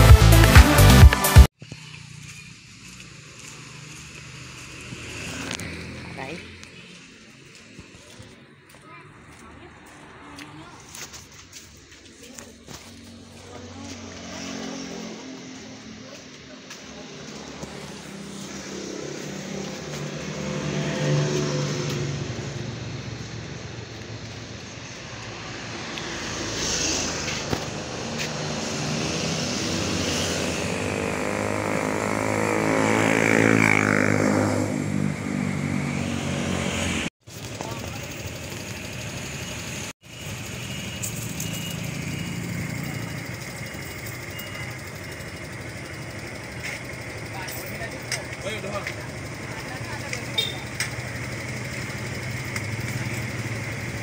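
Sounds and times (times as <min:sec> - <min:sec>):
vehicle engine passing: 0:01.7 - 0:54.0
motorcycle engine idling: 0:37.3 - 0:54.0
faint high beep: 0:40.6 - 0:45.2.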